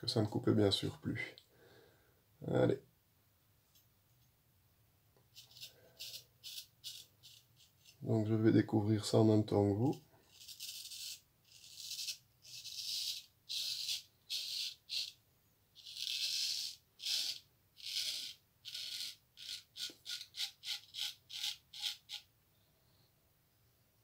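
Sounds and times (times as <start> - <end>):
razor scraping through stubble: 5.3 - 8.1, 10.3 - 15.2, 15.8 - 22.3.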